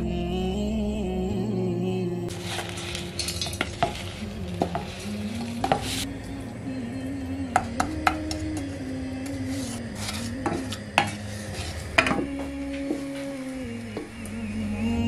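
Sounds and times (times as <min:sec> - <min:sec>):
wooden spoon scraping saucepan: 0:02.3 - 0:06.1, 0:09.4 - 0:12.2.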